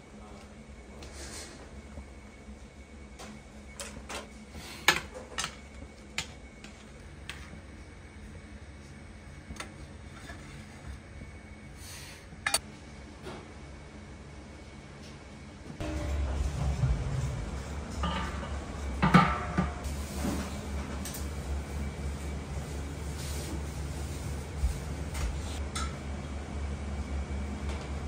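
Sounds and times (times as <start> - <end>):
low hum: 15.7 - 22.8.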